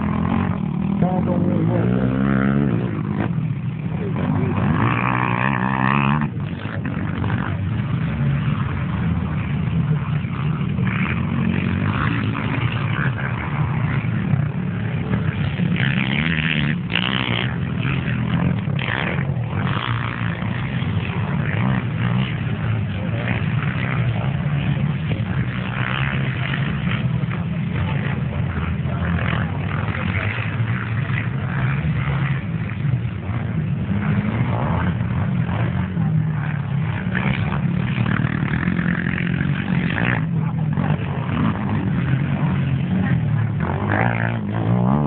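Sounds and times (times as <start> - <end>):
quad bike engines revving: 0.0 - 45.0.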